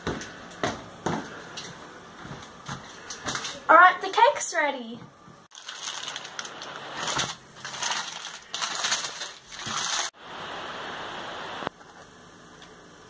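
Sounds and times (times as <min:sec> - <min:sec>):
baking paper crinkling: 0:05.5 - 0:10.2
steady hiss: 0:05.5 - 0:13.0.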